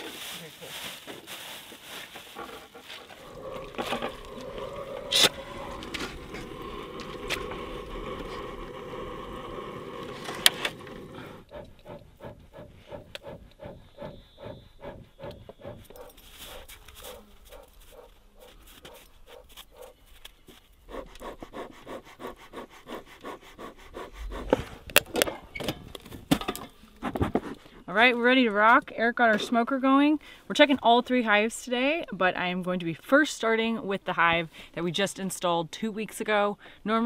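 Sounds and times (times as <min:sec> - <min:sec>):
dog panting: 0:02.3 - 0:08.7, 0:11.0 - 0:20.0, 0:20.8 - 0:25.0
torch flame hissing: 0:03.2 - 0:11.5.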